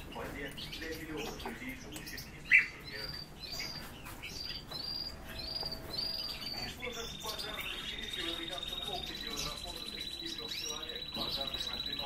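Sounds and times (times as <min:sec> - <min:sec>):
bird chirp: 0:00.0 - 0:12.0
fast buzzy bird trill: 0:04.9 - 0:12.0.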